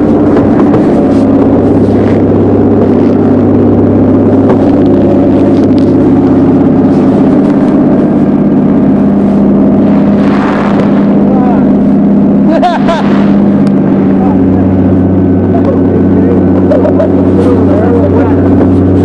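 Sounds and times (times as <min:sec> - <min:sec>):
motorboat engine running: 0:00.0 - 0:19.0.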